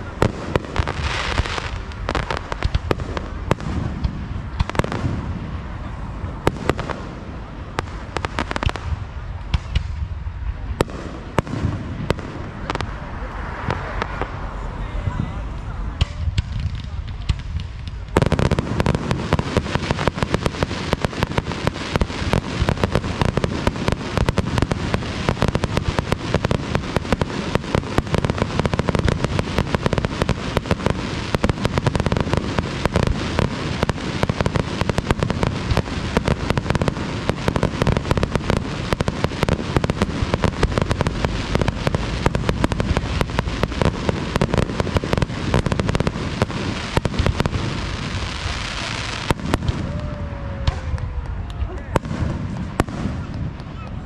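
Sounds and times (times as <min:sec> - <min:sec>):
fireworks bangs and crackles: 0:00.0 - 0:54.0.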